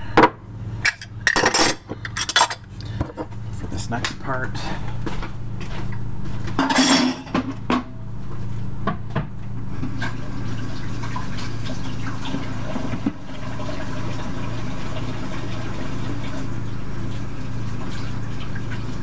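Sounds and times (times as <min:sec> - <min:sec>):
low steady hum: 0:00.0 - 0:19.0
dishes clattering: 0:00.8 - 0:03.3, 0:06.6 - 0:07.5.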